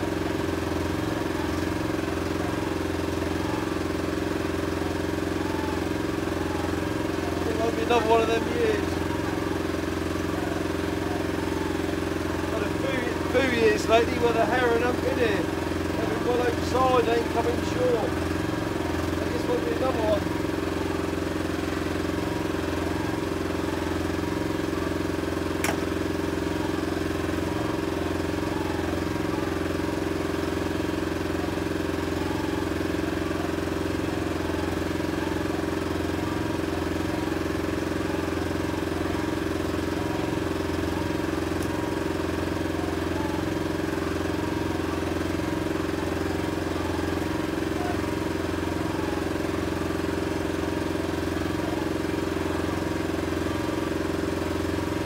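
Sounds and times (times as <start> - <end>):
outboard motor running: 0.0 - 55.0.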